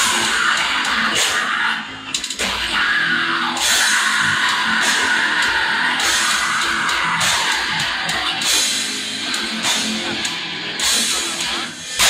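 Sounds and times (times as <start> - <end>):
heavy metal band playing live: 0.0 - 12.0.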